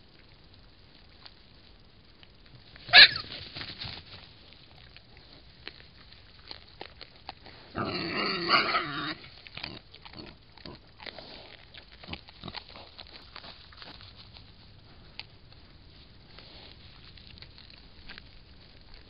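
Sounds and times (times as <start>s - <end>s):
wild boar call: 2.9s - 3.4s, 7.6s - 10.8s
rustling in dry straw: 11.1s - 19.0s.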